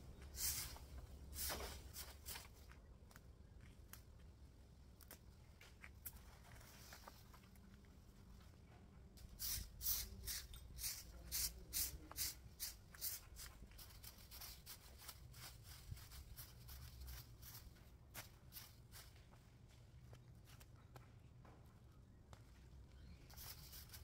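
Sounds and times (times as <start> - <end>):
broom sweeping concrete: 0.2 - 2.5, 9.4 - 19.2, 23.3 - 24.0.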